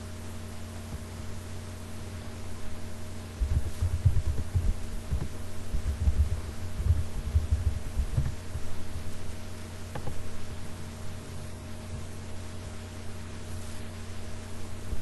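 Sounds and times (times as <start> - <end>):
steady electrical hum: 0.0 - 15.0
dull keyboard typing thuds: 3.4 - 8.7.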